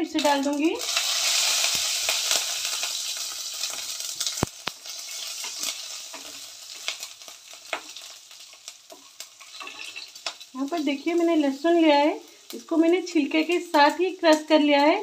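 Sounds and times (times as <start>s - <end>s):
popping seeds: 0.0s - 8.0s
chillies sizzling in hot oil: 0.0s - 15.0s.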